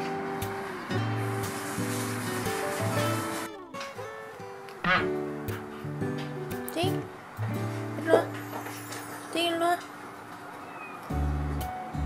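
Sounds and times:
low held bass notes: 0:04.8 - 0:06.1.

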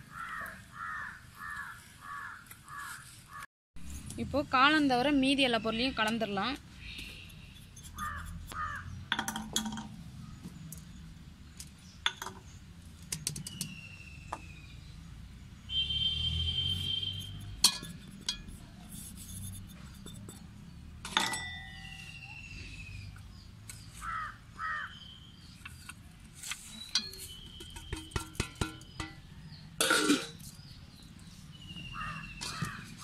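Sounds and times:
birds calling: 0:00.0 - 0:03.5, 0:06.8 - 0:11.0, 0:21.6 - 0:26.0, 0:30.4 - 0:33.0
spoon clinking metal bowl: 0:17.2 - 0:18.6, 0:21.1 - 0:21.9, 0:29.8 - 0:30.4.

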